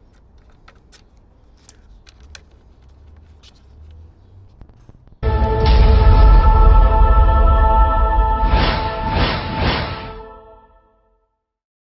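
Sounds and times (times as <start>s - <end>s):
light plastic clicks and rubbing: 0.0s - 5.2s.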